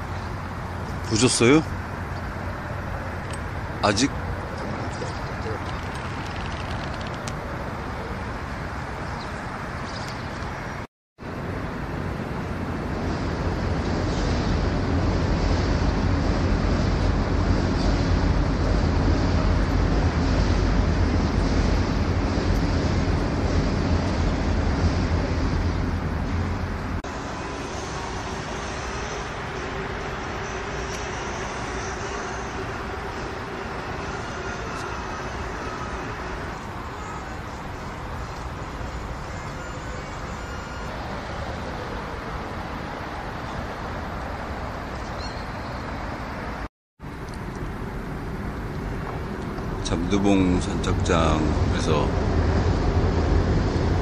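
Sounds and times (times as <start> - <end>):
wind rumble on microphone: 0.0 - 27.0, 40.9 - 54.0
distant road traffic: 0.0 - 54.0.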